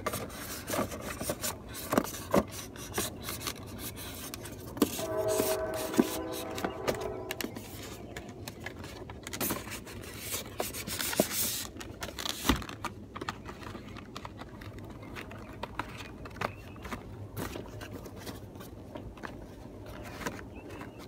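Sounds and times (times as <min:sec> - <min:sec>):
cardboard box scraping: 0:00.0 - 0:08.1.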